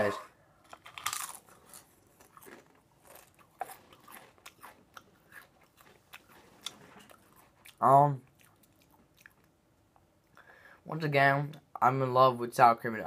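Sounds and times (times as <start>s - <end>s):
crisp bitten and chewed: 0.6s - 9.5s.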